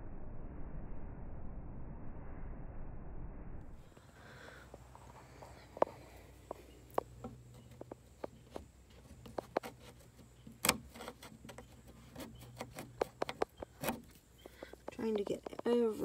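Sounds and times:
metal tool scraping wood: 6.9 - 16.0.

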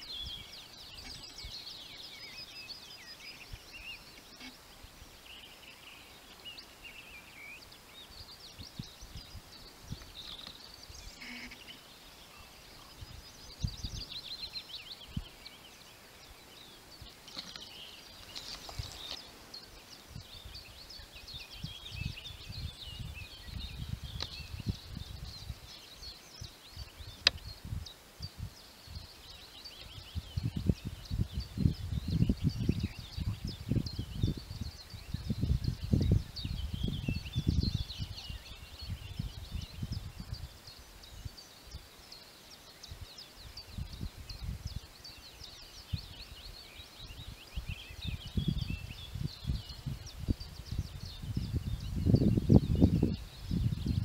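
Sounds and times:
wind gusts on microphone: 0.0 - 5.4, 7.6 - 15.6, 16.2 - 41.9, 42.8 - 54.0
songbirds singing: 0.0 - 54.0.

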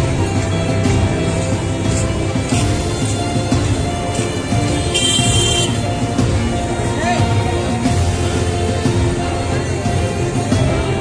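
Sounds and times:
instrumental music with pulsing beat: 0.0 - 11.0.

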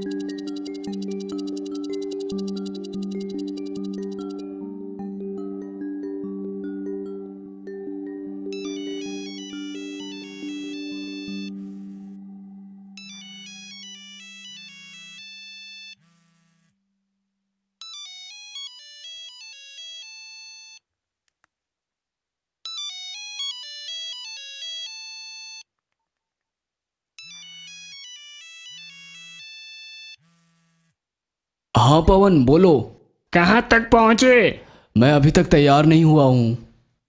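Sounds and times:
phone vibrating buzz: 0.0 - 4.6, 8.6 - 16.8, 27.2 - 31.0
phone ringtone melody: 0.0 - 16.3, 17.8 - 20.8, 22.7 - 25.7, 27.2 - 30.3.

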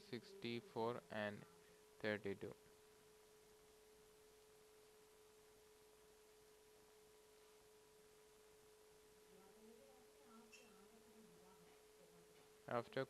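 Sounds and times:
constant low tone: 0.0 - 7.2
faint steady hiss: 0.0 - 13.0.

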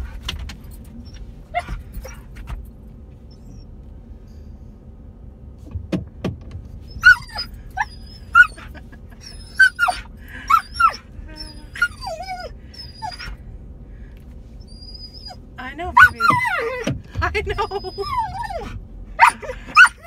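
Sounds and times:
car low rumble: 0.0 - 20.0
dog whining and yelping: 1.0 - 2.5, 3.3 - 3.7, 6.8 - 13.4, 14.6 - 20.0.

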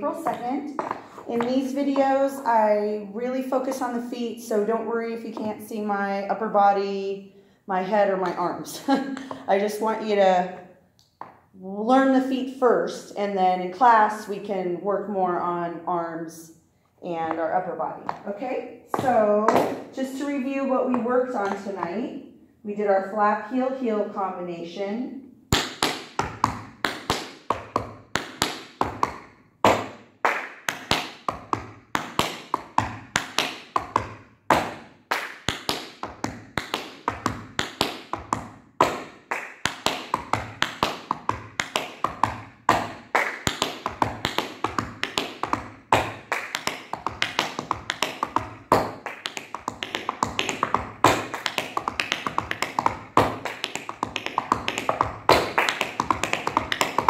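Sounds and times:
tap shoes on wooden floor: 0.0 - 2.3, 5.3 - 5.6, 17.2 - 20.2, 20.8 - 22.0, 25.5 - 30.0, 30.7 - 34.9, 35.5 - 57.0.

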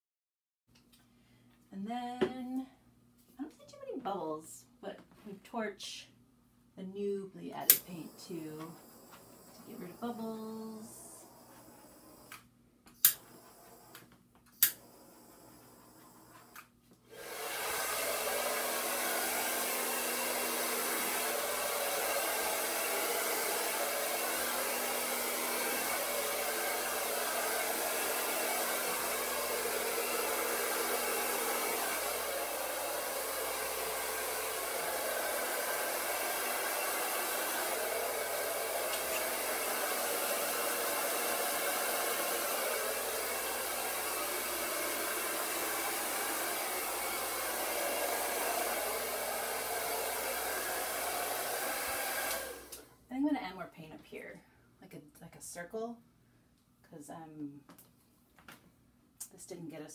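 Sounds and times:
hair dryer blowing: 7.5 - 52.9.

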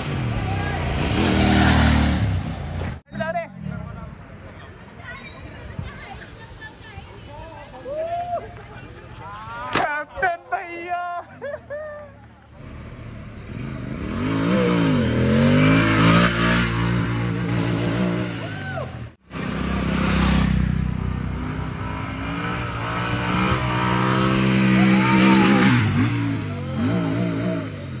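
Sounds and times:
motorcycle engine revving: 0.0 - 3.0, 12.6 - 18.5, 19.3 - 28.0.

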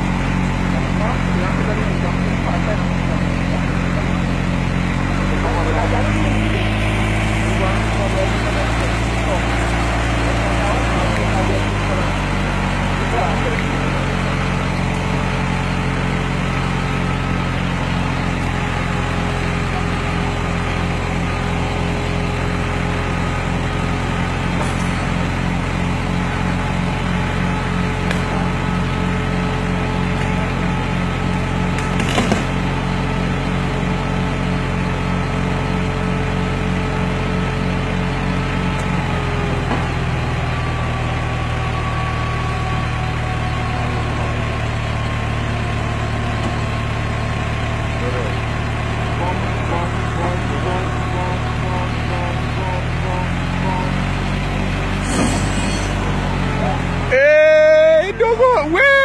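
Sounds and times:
truck engine running: 0.0 - 59.0
sharp crack: 31.7 - 32.7.

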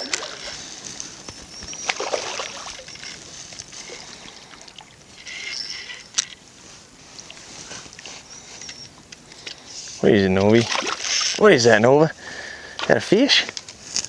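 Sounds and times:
fish splashing in shallow water: 0.0 - 5.2, 10.6 - 11.4.

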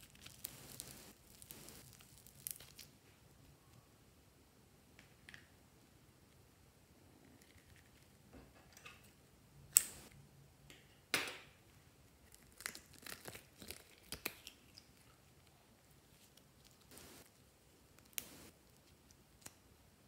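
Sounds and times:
small crackles and clicks: 0.0 - 3.0, 18.0 - 19.6
sharp snaps: 9.7 - 10.1.

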